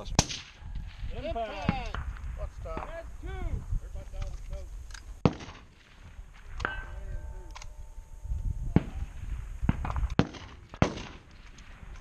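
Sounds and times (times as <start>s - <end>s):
rifle shots: 0.2s - 0.6s, 5.2s - 7.8s, 8.8s - 12.0s.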